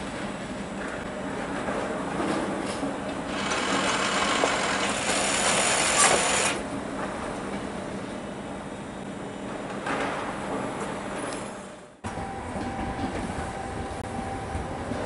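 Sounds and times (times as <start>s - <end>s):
train wheels running on track: 0.0s - 15.0s.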